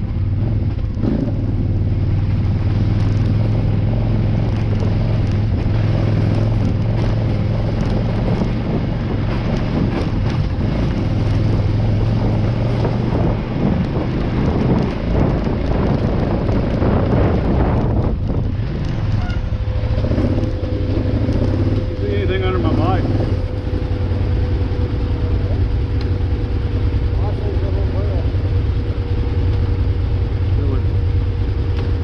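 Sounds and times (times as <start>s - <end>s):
motorcycle engine running: 0.0s - 32.0s
motorcycle rattling over rough ground: 0.0s - 32.0s
wind buffeting the microphone: 2.6s - 27.2s.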